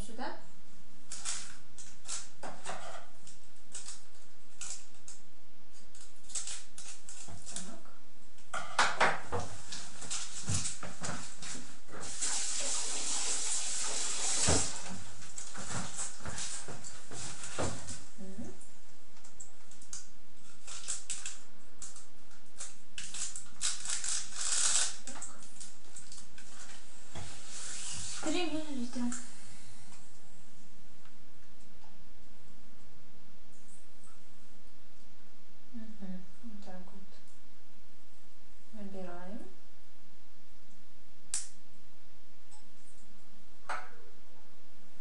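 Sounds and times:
small objects crinkling and rattling: 0:01.0 - 0:18.0, 0:19.2 - 0:26.9.

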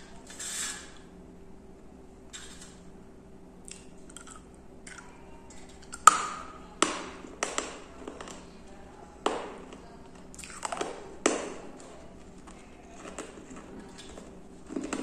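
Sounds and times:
biting clay shards crunching: 0:03.7 - 0:05.1.

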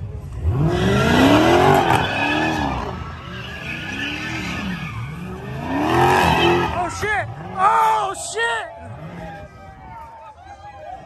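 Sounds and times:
car engine revving: 0:00.2 - 0:08.0
tyres squealing on pavement: 0:00.6 - 0:08.4.

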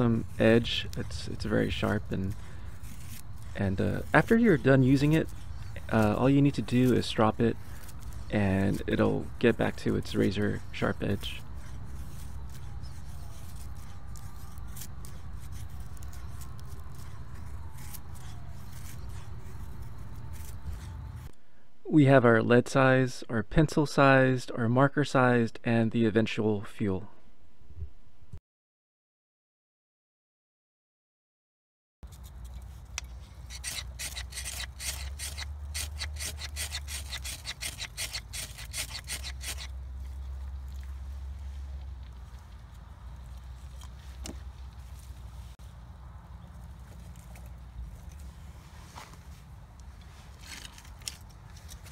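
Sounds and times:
knife shaving wooden stick: 0:00.0 - 0:21.3, 0:32.0 - 0:45.7, 0:46.6 - 0:51.9.

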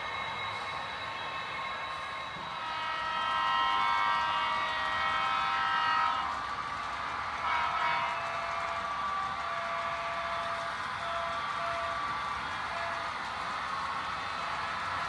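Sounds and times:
model train horn chord: 0:02.4 - 0:12.1, 0:12.7 - 0:13.1.

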